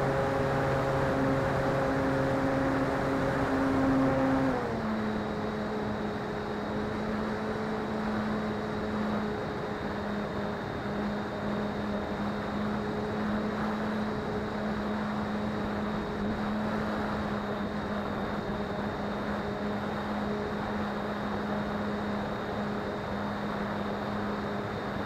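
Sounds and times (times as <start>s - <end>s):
electric motor hum: 0.0s - 19.0s.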